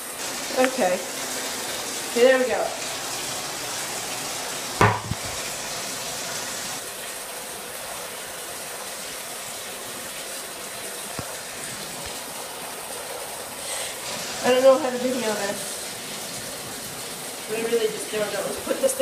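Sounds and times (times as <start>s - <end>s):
tap water running into bathtub: 0.0s - 19.0s
sharp knock: 4.8s - 5.3s.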